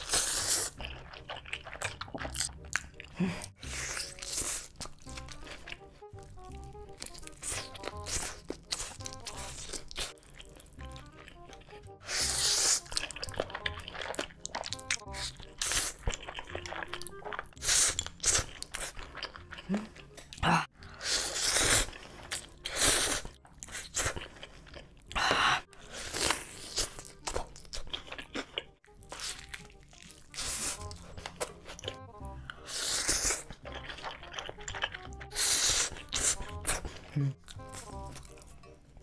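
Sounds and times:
slurping noodles: 0.0 - 2.4, 12.0 - 16.7, 20.8 - 24.2, 32.5 - 37.1
chewing: 0.0 - 39.0
faint background music: 0.0 - 39.0.

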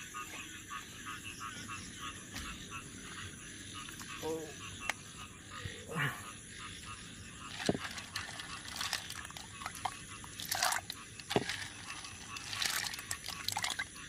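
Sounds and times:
snail shells clicking: 7.5 - 13.8.

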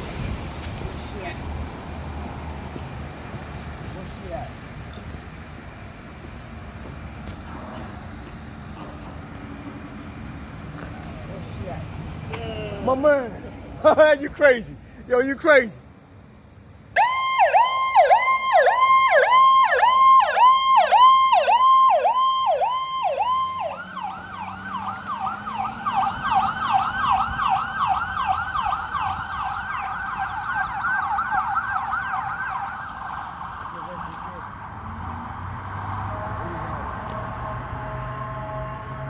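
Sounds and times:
ambulance siren yelping: 17.0 - 34.6.

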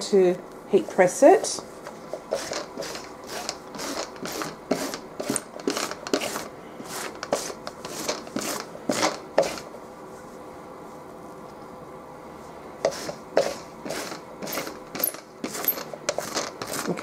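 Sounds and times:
lint roller rasping on towel: 2.0 - 9.7, 12.8 - 17.0.

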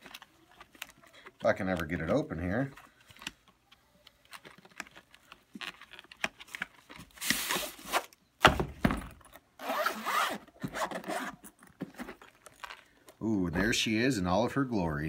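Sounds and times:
case thudding on glass counter: 8.4 - 9.3
cardboard sleeve scraping: 9.6 - 11.4
zipper rasping: 9.6 - 11.5.

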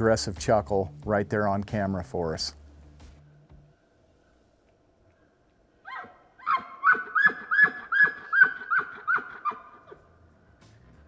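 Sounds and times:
bull elk calling: 5.8 - 10.0.

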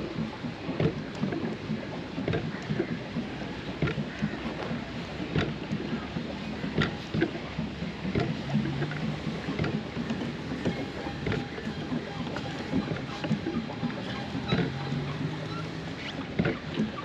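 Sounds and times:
knocks and clicks: 0.0 - 17.0
paddle wheel churning water: 0.0 - 17.0.

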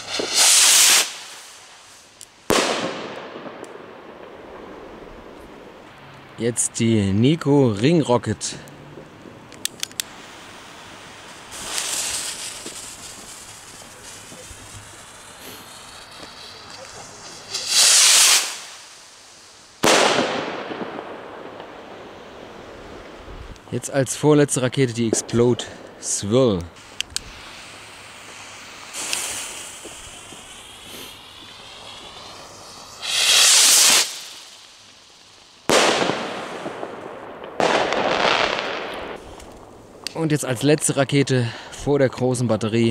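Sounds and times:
firework rocket whoosh: 0.0 - 5.8, 9.0 - 23.7, 26.7 - 40.1
faint hiss: 0.0 - 42.9.

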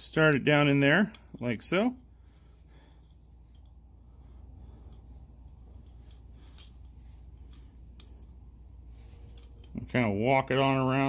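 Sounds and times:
low steady hum: 0.0 - 11.0
piston ring clicking and scraping: 0.6 - 10.2.

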